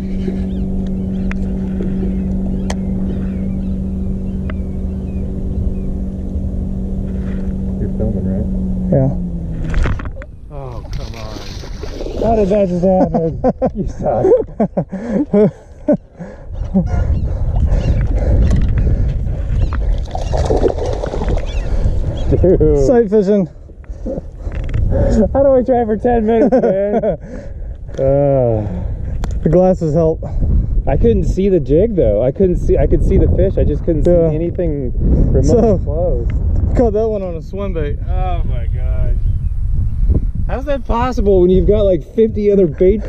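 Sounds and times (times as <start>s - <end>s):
steady low hum: 0.0s - 43.0s
uneven low rumble: 0.0s - 43.0s
fish splashing in water: 19.7s - 22.0s.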